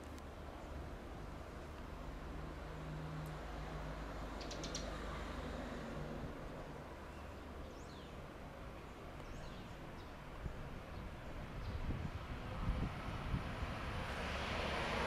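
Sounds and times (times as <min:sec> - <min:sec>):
bird chirps: 0:04.4 - 0:05.0.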